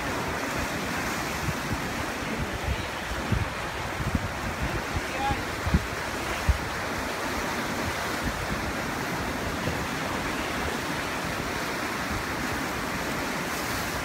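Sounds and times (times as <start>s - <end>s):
surf breaking on rocks: 0.0s - 14.0s.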